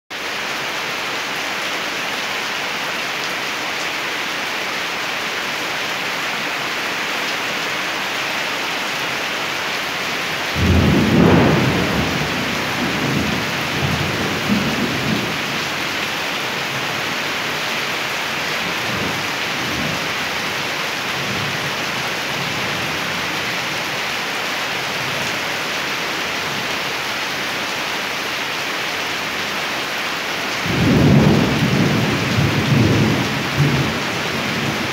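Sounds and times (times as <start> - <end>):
steady rain falling: 0.1 - 34.9
thunder rumbling: 10.5 - 16.0, 30.6 - 34.9.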